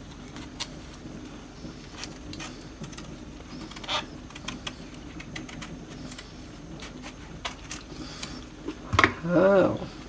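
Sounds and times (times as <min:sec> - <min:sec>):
faint steady hum: 0:00.0 - 0:10.0
knife peeling fruit skin: 0:01.8 - 0:09.4.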